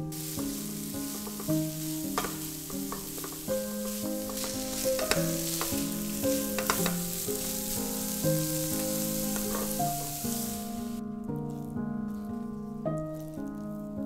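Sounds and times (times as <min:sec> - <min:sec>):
vegetables sizzling in a frying pan: 0:00.0 - 0:11.0
soft background music: 0:00.0 - 0:14.0
spatula scraping and tapping pan: 0:00.1 - 0:10.8.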